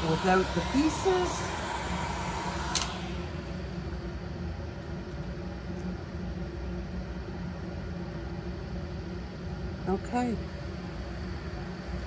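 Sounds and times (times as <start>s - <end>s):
airy hiss: 0.0s - 4.0s
fan humming: 0.0s - 12.0s.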